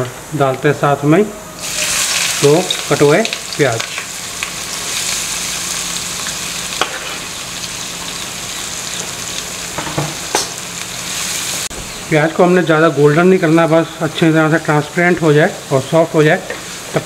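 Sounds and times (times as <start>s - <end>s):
onions sizzling in hot oil: 1.6s - 12.0s, 16.4s - 17.0s.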